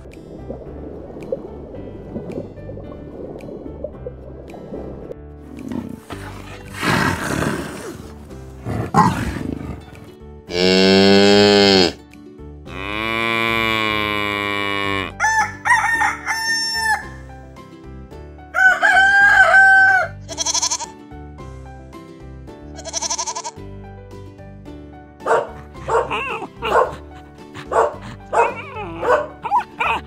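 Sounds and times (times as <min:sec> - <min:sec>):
lion growling: 0:05.5 - 0:11.7, 0:25.3 - 0:30.0
cow mooing: 0:10.5 - 0:12.0, 0:12.7 - 0:15.2
rooster crowing: 0:15.2 - 0:17.2, 0:18.6 - 0:20.2
goat bleating: 0:20.2 - 0:20.9, 0:22.8 - 0:23.6.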